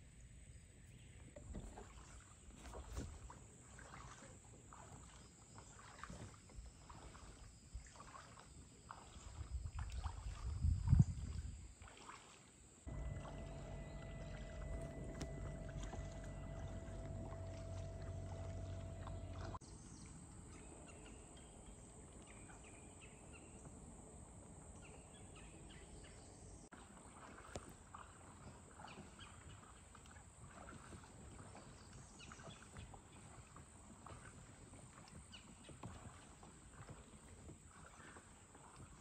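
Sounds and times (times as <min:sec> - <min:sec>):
paddle splashes and drips: 0:01.2 - 0:39.0
steady hum with held tone: 0:12.9 - 0:19.6.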